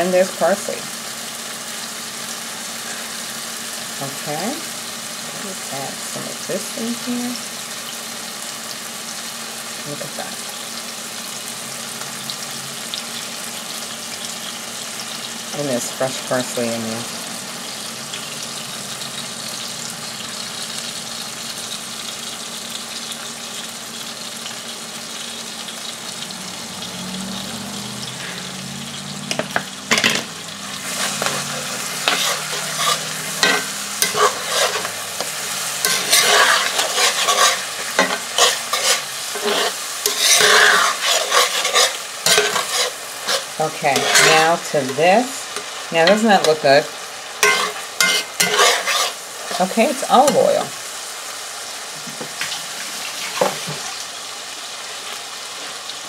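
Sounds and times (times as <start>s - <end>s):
vegetables sizzling in oil: 0.0s - 56.0s
metal spatula scraping a pan: 29.3s - 45.0s, 47.4s - 50.7s.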